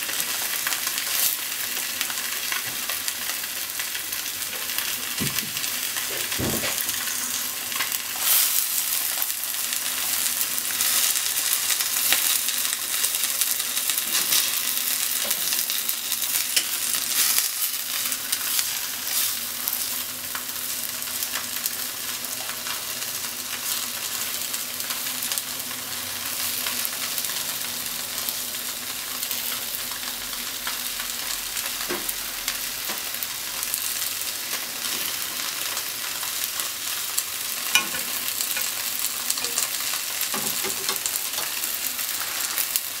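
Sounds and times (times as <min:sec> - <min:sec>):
tofu sizzling in frying pan: 0:00.0 - 0:43.0
chopsticks tapping pan: 0:37.7 - 0:41.6.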